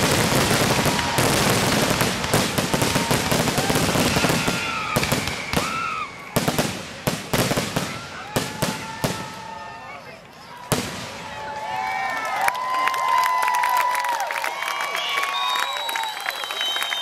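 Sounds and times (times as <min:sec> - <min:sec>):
fireworks bangs and crackle: 0:00.0 - 0:11.8.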